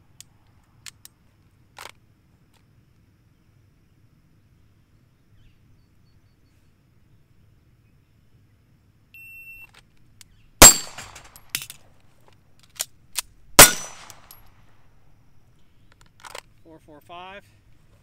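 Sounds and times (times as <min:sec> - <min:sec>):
pistol shots: 0:10.6 - 0:11.7, 0:13.6 - 0:14.5.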